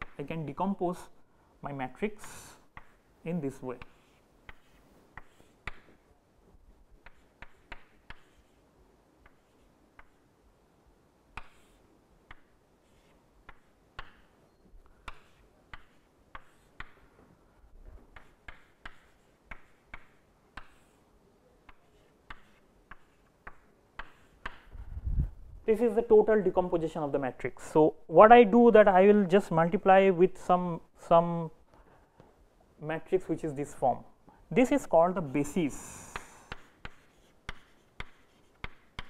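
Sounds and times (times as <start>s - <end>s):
chalk tapping on chalkboard: 2.2s - 3.0s, 3.8s - 6.0s, 7.0s - 8.6s, 9.2s - 10.2s, 11.3s - 14.3s, 15.0s - 17.1s, 18.1s - 21.0s, 21.6s - 24.7s, 36.1s - 39.0s
chalk scratching on chalkboard: 3.8s - 5.9s, 7.0s - 10.2s, 11.4s - 14.2s, 15.0s - 17.0s, 18.1s - 21.1s, 21.7s - 24.7s, 36.1s - 39.0s.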